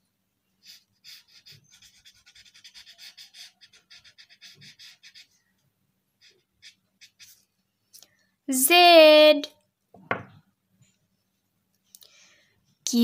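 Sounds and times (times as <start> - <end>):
marker scratching on paper: 0.6 - 5.4, 6.2 - 7.5.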